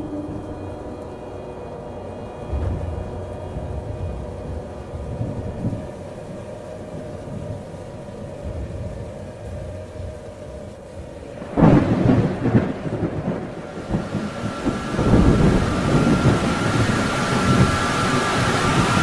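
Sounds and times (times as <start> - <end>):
rain hiss: 0.0 - 19.0
thunder rumbling and clapping: 2.3 - 6.3, 11.4 - 19.0.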